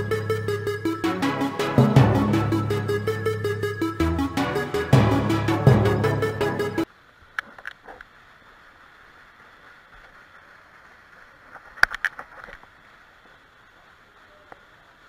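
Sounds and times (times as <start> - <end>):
low steady hiss: 0.0 - 15.0.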